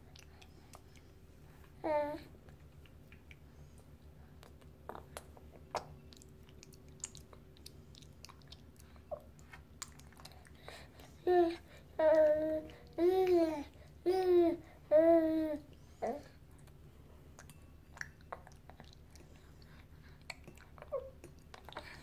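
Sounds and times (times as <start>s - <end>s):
baby mouth smacks and clicks: 4.4s - 8.7s, 9.4s - 10.4s, 17.4s - 19.0s.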